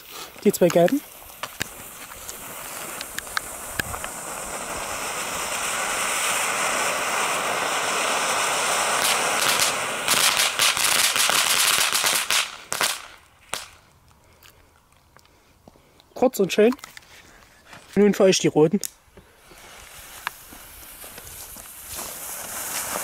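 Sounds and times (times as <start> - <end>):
fountain fireworks hissing: 0.0 - 13.8, 19.4 - 23.0
rapid crackling pops: 0.3 - 7.7, 8.8 - 14.6.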